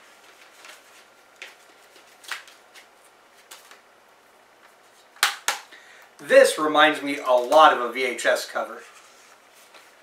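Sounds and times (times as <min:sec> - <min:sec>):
paper sleeve rustling: 0:00.0 - 0:03.8, 0:08.6 - 0:10.0.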